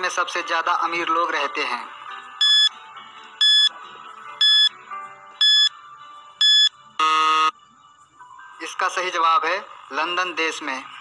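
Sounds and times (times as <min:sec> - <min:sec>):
short high beeps: 0:04.4 - 0:04.7, 0:05.4 - 0:05.7
long buzzer tone: 0:06.4 - 0:07.6.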